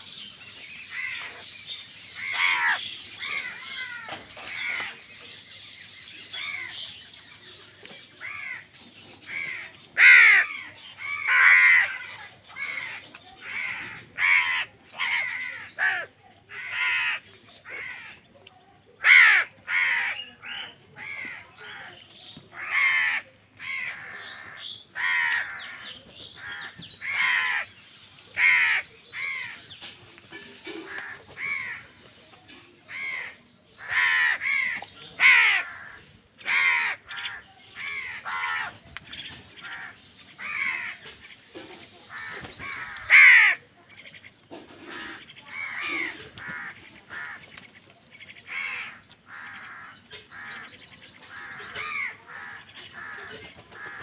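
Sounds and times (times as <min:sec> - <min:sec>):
crows cawing: 0:02.2 - 0:05.0, 0:08.2 - 0:08.7, 0:09.3 - 0:18.2, 0:19.0 - 0:27.7, 0:28.4 - 0:29.6, 0:30.6 - 0:32.0, 0:32.9 - 0:38.8, 0:39.6 - 0:41.2, 0:42.1 - 0:43.6, 0:44.5 - 0:47.5, 0:48.4 - 0:50.7, 0:51.3 - 0:54.0.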